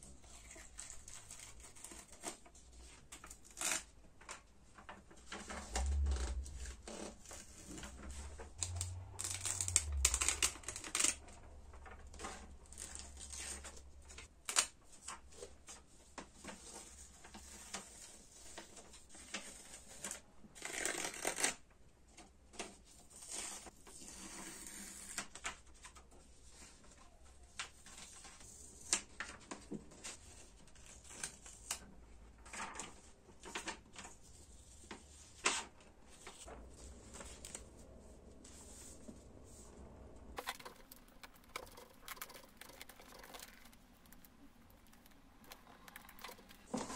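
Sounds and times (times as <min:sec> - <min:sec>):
paper crinkling and rustling: 0:00.1 - 0:21.6, 0:22.5 - 0:39.2, 0:40.4 - 0:46.9
low rumble: 0:05.4 - 0:12.0, 0:36.5 - 0:41.2.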